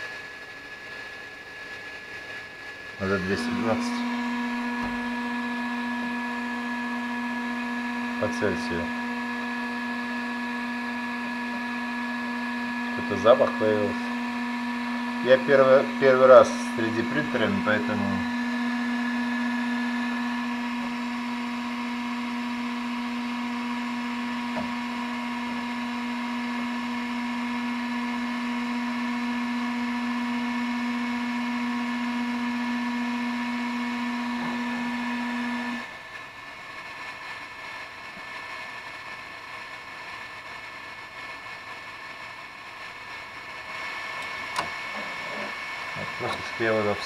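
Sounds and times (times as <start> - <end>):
printer fans and motors humming: 1.3 - 40.0, 42.9 - 47.0.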